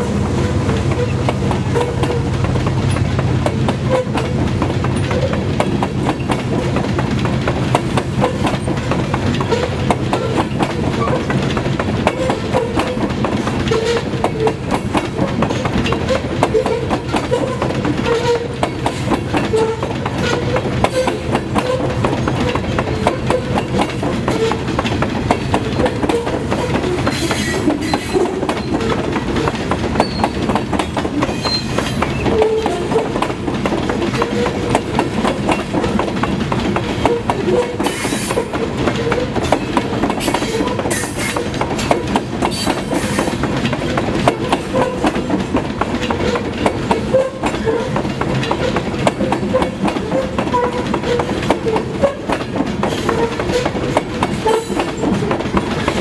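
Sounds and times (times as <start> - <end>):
train rumble: 0.0 - 56.0
train wheels clicking over track joints: 0.0 - 56.0.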